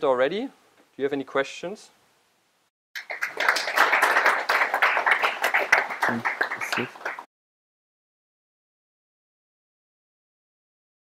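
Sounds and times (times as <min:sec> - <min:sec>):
audience applauding: 0:03.0 - 0:07.3.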